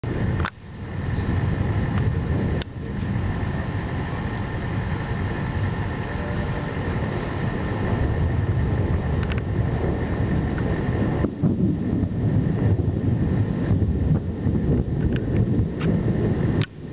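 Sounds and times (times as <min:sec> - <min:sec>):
low thunder rumble: 0:00.0 - 0:16.9
faint clicks: 0:09.2 - 0:10.7.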